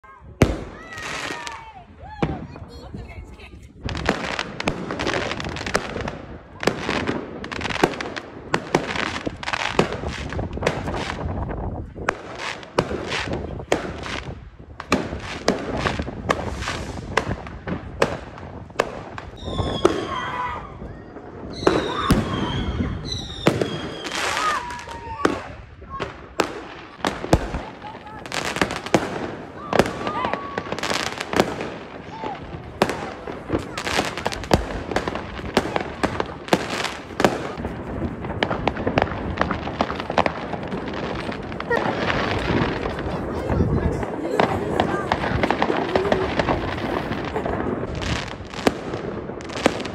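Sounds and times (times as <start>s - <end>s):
fireworks bursting: 0.0s - 49.9s.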